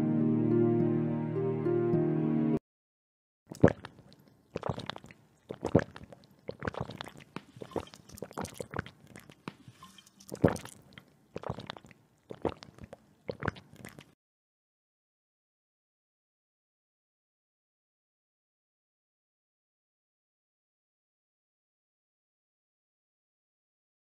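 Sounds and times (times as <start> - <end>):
people gulping and swallowing water: 3.5 - 14.2.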